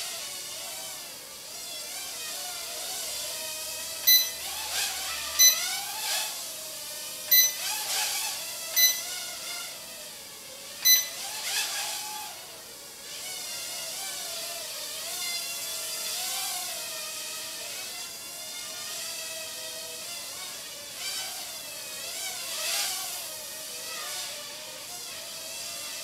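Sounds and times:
quadcopter motors whining: 0.0s - 26.0s
short electronic beeps: 4.1s - 4.4s, 5.4s - 5.7s, 7.3s - 7.6s, 8.8s - 9.1s, 10.8s - 11.2s.

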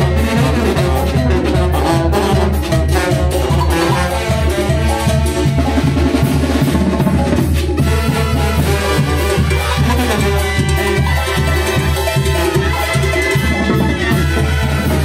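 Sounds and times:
brass band playing: 0.0s - 15.0s
drums beating: 0.0s - 15.0s.

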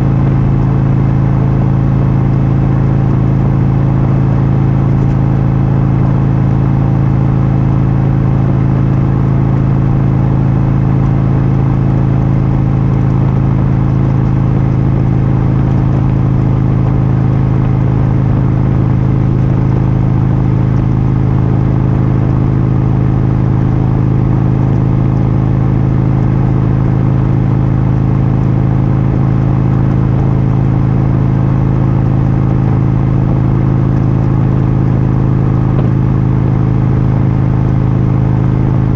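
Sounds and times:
motorcycle engine cruising: 0.0s - 38.9s
road and wind noise: 0.0s - 38.9s.

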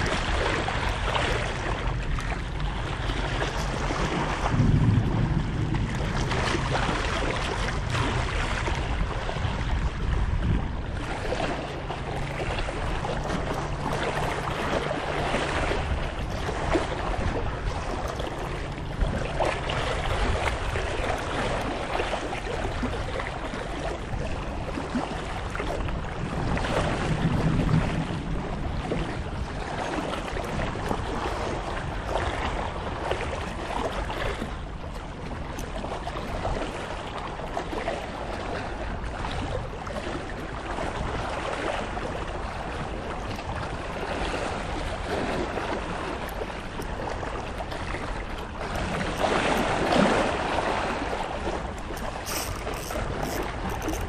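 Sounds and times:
sea waves lapping: 0.0s - 54.0s
wind on microphone: 0.0s - 54.0s.

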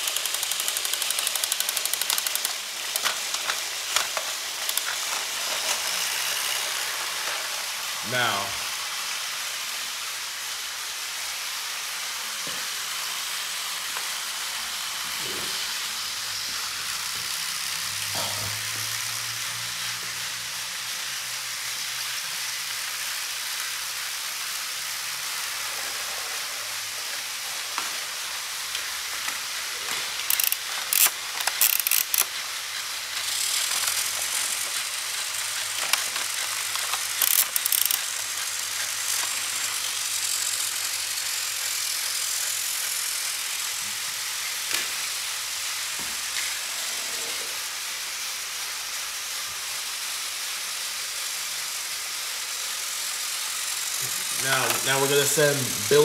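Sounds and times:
plastic clicks and clatters: 0.0s - 5.8s, 29.3s - 32.3s, 35.7s - 38.1s
toy train motors whirring: 0.0s - 56.0s.

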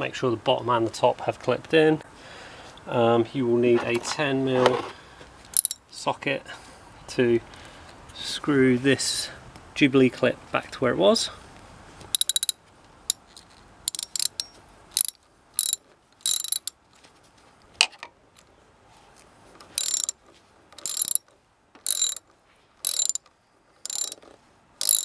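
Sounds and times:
ratchet wrench clicking: 5.5s - 5.8s, 12.1s - 16.8s, 19.7s - 20.2s, 20.8s - 22.2s, 22.8s - 25.0s.

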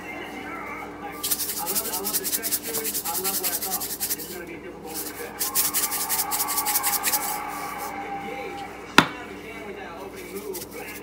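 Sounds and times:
seasoning shaker rattling: 1.2s - 7.9s, 10.2s - 11.0s.

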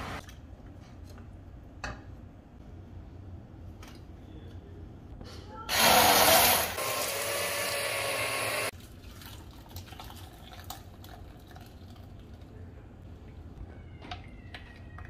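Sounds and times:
hand blender whirring: 5.7s - 8.7s
gravy pouring and dripping: 8.7s - 13.5s.

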